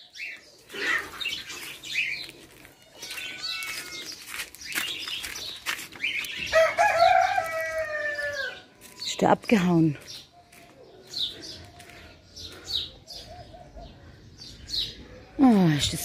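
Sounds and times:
rooster crowing: 0:06.5 - 0:08.7.

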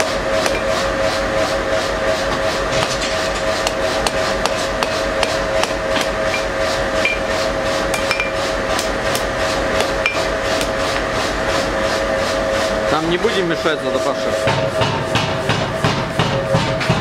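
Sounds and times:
steady hum: 0:00.0 - 0:17.0
hammer striking steel on anvil: 0:00.4 - 0:00.8, 0:03.6 - 0:07.3, 0:07.9 - 0:10.8, 0:14.4 - 0:17.0.

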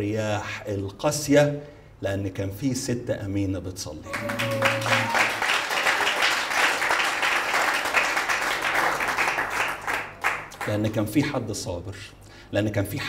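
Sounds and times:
crowd applauding: 0:04.1 - 0:10.8.

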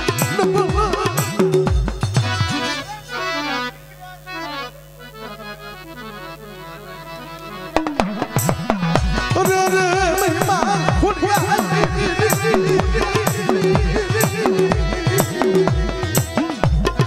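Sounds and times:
loud drums: 0:00.0 - 0:02.8, 0:07.8 - 0:17.0
folk melody instrument: 0:00.0 - 0:17.0
steady drone: 0:00.0 - 0:17.0.

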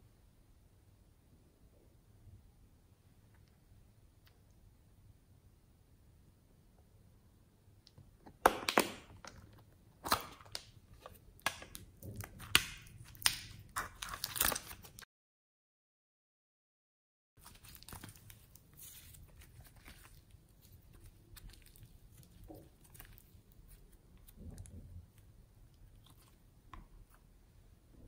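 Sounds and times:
slime squishing: 0:08.4 - 0:15.0, 0:17.4 - 0:27.3.

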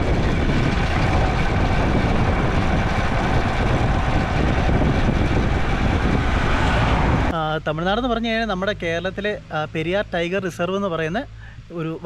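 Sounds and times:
motorcycle engine running: 0:00.0 - 0:09.4
wind and road noise: 0:00.0 - 0:12.0.

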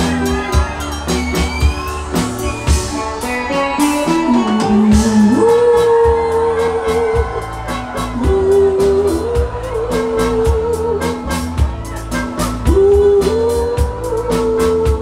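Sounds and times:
keyboard backing with beat: 0:00.0 - 0:15.0
woman singing into microphone: 0:02.1 - 0:11.3, 0:12.6 - 0:15.0.

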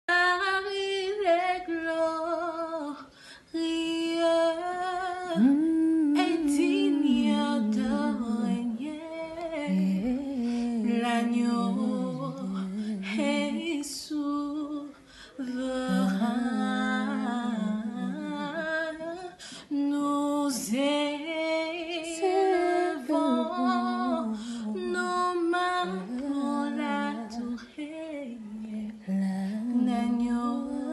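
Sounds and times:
woman singing a cappella: 0:00.1 - 0:30.9.

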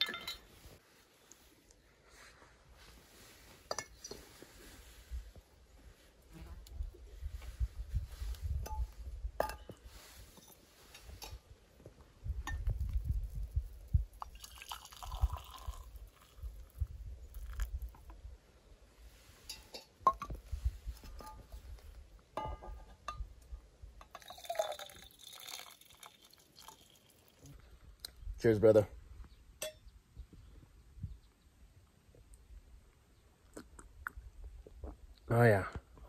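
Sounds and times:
glass clinks: 0:00.0 - 0:00.5, 0:29.6 - 0:29.8
drink pouring: 0:14.2 - 0:17.8, 0:24.0 - 0:27.6.

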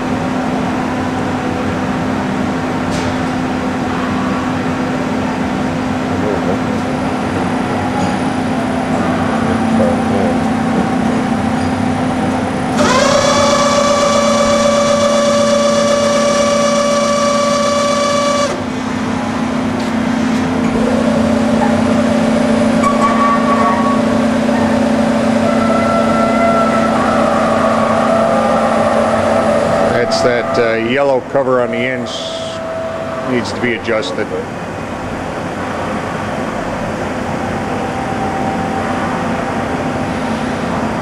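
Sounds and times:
mill table feed drive whining: 0:00.0 - 0:41.0
steady machine hum: 0:00.0 - 0:41.0.

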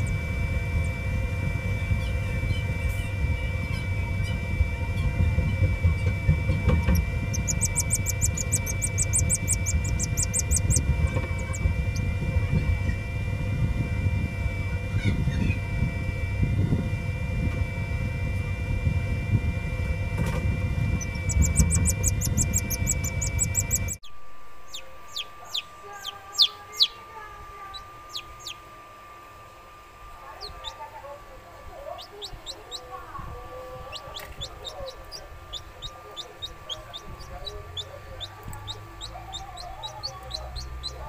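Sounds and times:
faint steady hum: 0:00.0 - 0:41.0
low rumble with hum: 0:00.0 - 0:41.0
chicks peeping: 0:01.8 - 0:12.9, 0:20.2 - 0:28.6, 0:30.3 - 0:31.0, 0:31.8 - 0:41.0.

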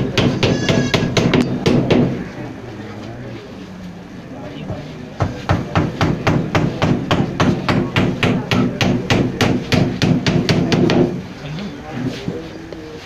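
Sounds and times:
hammer blows on wood: 0:00.0 - 0:02.2.

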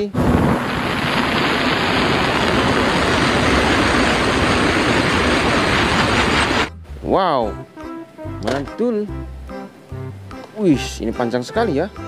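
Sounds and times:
jet ski engine and spray: 0:00.0 - 0:06.7.

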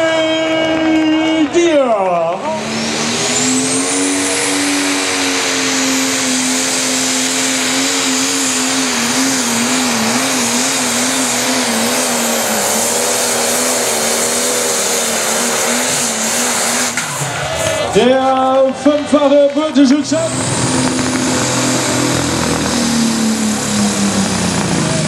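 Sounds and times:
diesel engine running under load: 0:00.0 - 0:25.0
high turbo whistle: 0:02.7 - 0:17.9.

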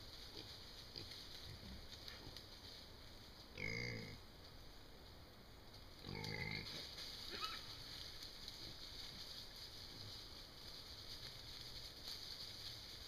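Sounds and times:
high-pitched hog call: 0:03.6 - 0:04.2, 0:06.0 - 0:07.8.

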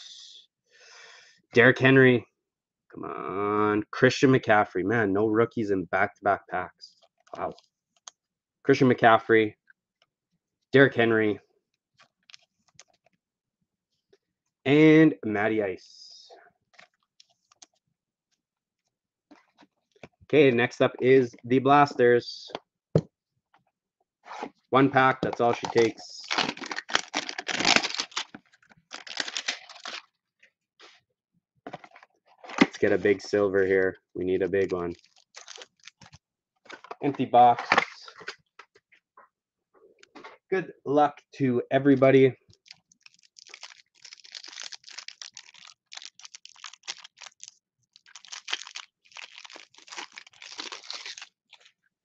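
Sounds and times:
packaging tearing and crinkling: 0:25.5 - 0:30.1, 0:34.9 - 0:36.2, 0:42.6 - 0:51.7.

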